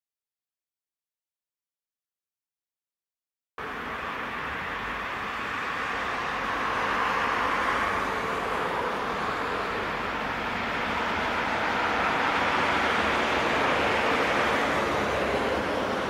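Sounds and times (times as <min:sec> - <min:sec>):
traffic hiss: 0:03.6 - 0:16.0
tram approaching on track: 0:03.6 - 0:16.0.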